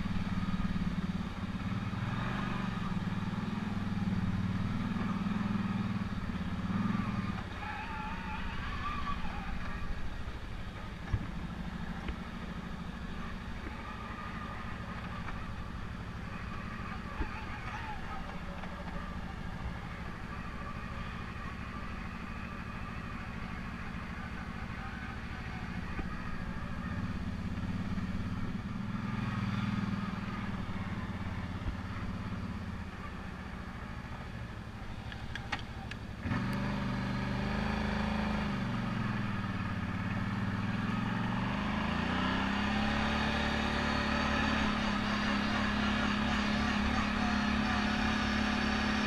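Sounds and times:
quad bike engine revving: 0.0s - 49.0s.

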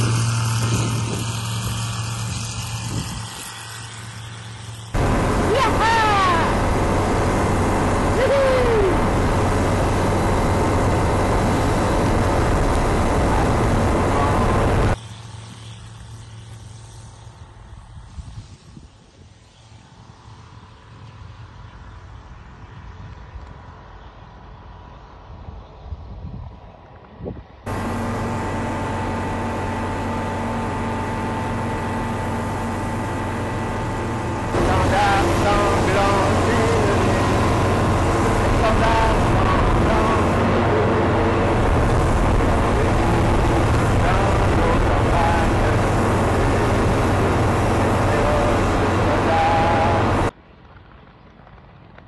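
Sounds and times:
air rush: 0.0s - 17.2s, 27.7s - 50.3s
constant whine: 0.0s - 52.0s
propeller plane engine running: 0.0s - 52.0s.

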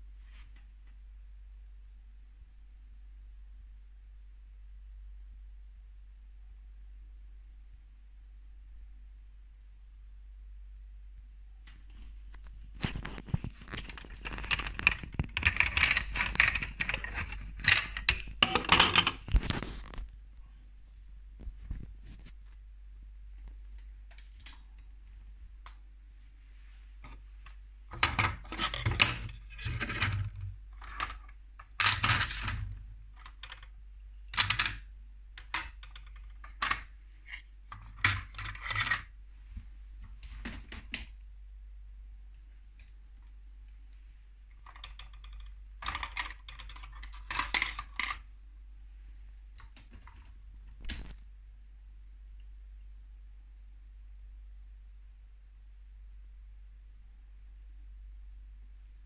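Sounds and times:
plastic toy parts clattering: 12.8s - 20.0s, 27.9s - 33.7s, 34.3s - 39.1s, 44.6s - 48.2s.

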